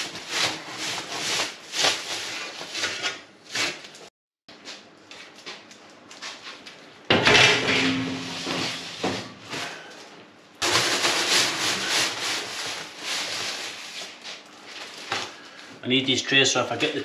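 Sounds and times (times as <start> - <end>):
metal baking trays clattering: 7.1 - 9.8, 10.6 - 13.6.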